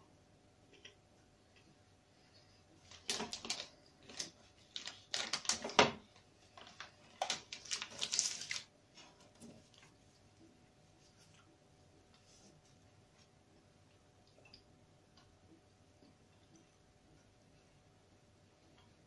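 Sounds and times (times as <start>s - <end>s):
foil wrapper crinkling: 2.8s - 9.9s.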